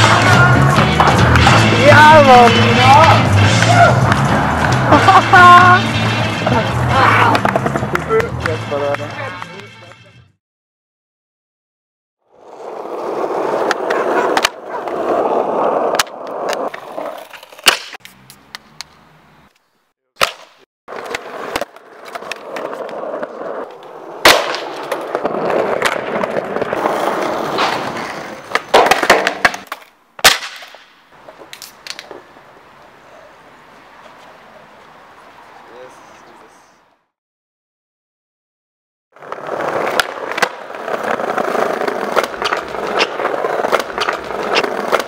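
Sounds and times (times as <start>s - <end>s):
skateboard clacks: 0.0s - 5.7s, 7.2s - 10.0s, 12.7s - 15.2s, 20.2s - 32.2s, 39.2s - 45.0s
skateboard wheels rolling: 0.0s - 9.5s, 12.3s - 19.6s, 20.2s - 35.3s, 39.2s - 45.0s.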